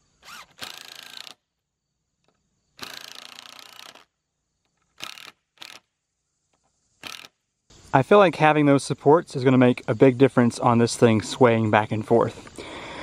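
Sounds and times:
impact driver driving screw: 0:00.2 - 0:01.4, 0:02.8 - 0:04.0, 0:07.0 - 0:07.3.

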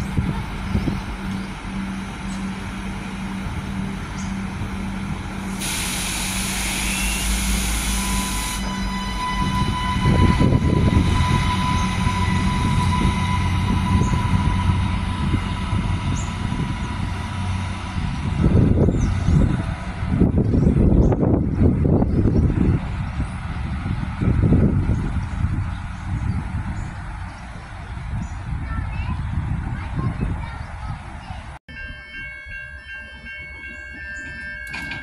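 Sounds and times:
diesel railcar engines pulling away: 0:00.0 - 0:35.0
burst of hissing: 0:05.6 - 0:08.6.

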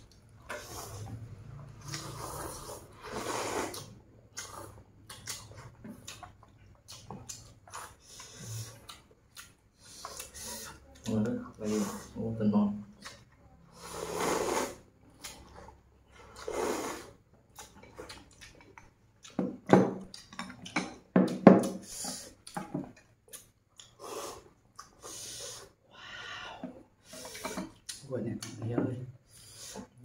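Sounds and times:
noodles slurping: 0:00.0 - 0:12.2, 0:13.7 - 0:18.7, 0:23.3 - 0:25.8
chewing with wet mouth smacks: 0:03.7 - 0:11.2, 0:12.9 - 0:13.4, 0:17.5 - 0:21.7.

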